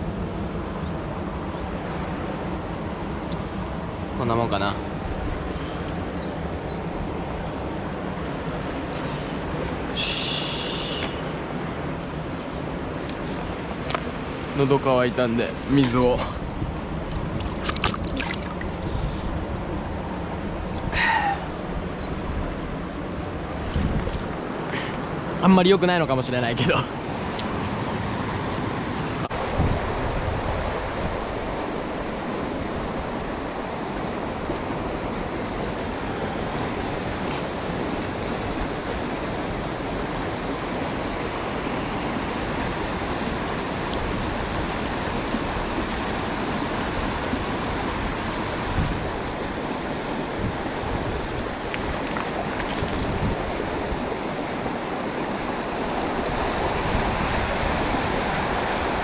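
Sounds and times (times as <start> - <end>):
stream rushing over rocks: 1.4 - 59.0
wind buffeting microphone: 15.7 - 21.0, 21.6 - 24.5, 29.3 - 59.0.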